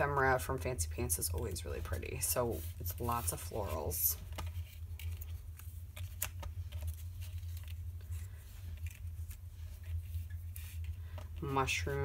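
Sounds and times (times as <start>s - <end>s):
steady low hum: 0.0s - 12.0s
paper ticks and rustles: 2.8s - 11.7s.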